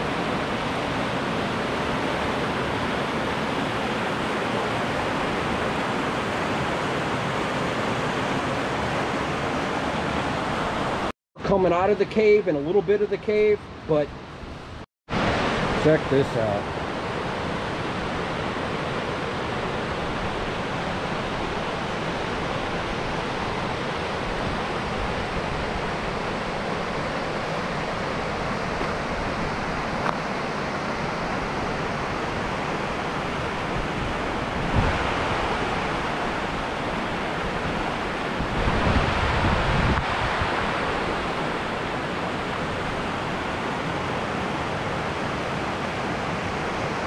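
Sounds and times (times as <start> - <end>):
water rushing over rocks: 15.1 - 47.0.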